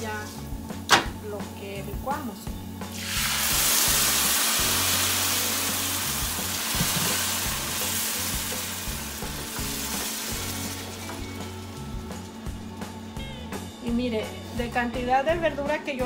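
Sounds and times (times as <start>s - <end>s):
liquid sizzling in hot skillet: 1.8s - 12.9s.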